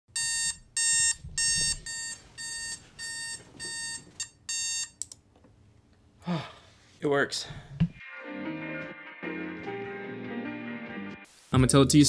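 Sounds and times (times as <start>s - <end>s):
alarm clock short electronic beeps: 0.2s - 5.0s.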